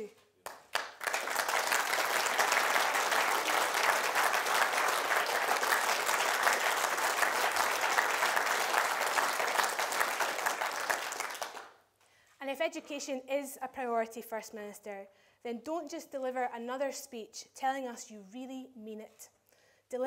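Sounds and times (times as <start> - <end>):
audience applause: 0.5 - 11.7.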